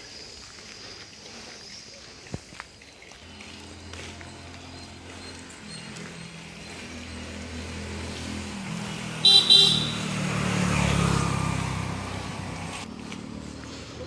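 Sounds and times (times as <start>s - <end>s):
vehicle engine passing by: 3.1s - 14.0s
vehicle horn toots: 9.2s - 10.3s.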